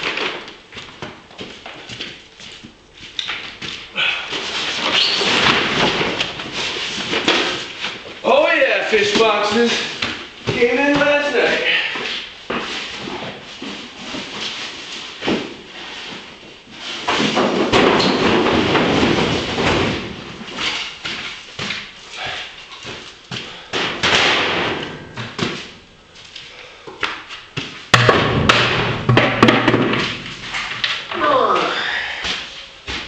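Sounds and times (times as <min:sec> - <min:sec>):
footsteps over debris: 0:00.0 - 0:17.6
foam boxes thudding and scraping: 0:03.7 - 0:08.2, 0:09.0 - 0:22.0.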